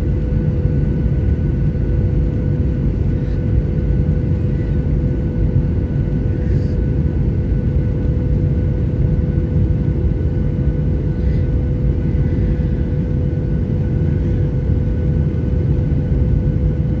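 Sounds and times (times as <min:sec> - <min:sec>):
jet engines and airflow rumble: 0:00.0 - 0:17.0
steady cabin hum: 0:00.0 - 0:17.0.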